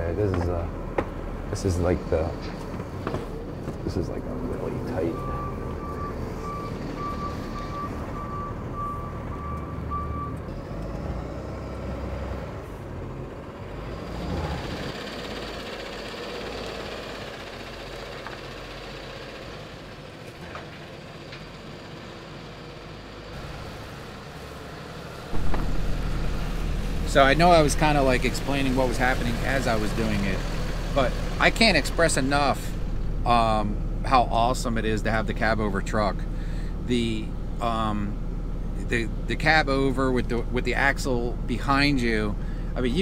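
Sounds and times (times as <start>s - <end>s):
diesel truck engine running: 0.0s - 43.0s
truck backup alarm beeping: 4.6s - 11.4s.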